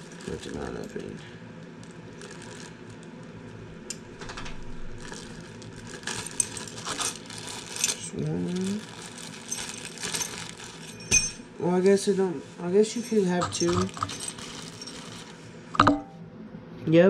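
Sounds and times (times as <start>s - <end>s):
metal plates clinking: 10.8s - 11.5s, 12.9s - 15.0s, 15.8s - 16.2s.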